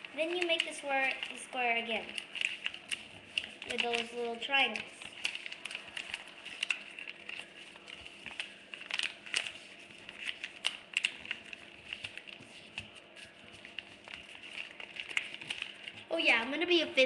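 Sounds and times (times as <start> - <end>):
paper crinkling and rustling: 0.0 - 16.8.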